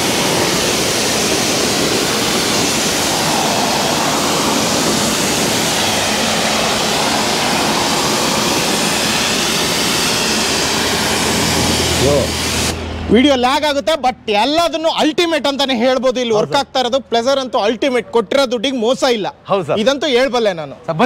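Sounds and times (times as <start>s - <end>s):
pressure washer spraying: 0.0s - 13.0s.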